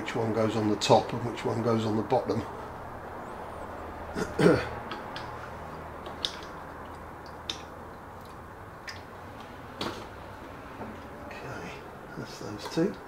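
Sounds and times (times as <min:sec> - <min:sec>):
small clicks and taps: 0:06.0 - 0:10.1.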